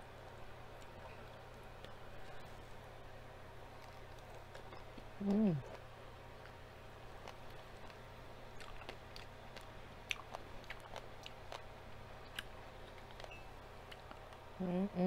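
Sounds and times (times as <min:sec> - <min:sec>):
faint low hum: 0:00.0 - 0:15.0
person chewing wetly: 0:03.6 - 0:14.4.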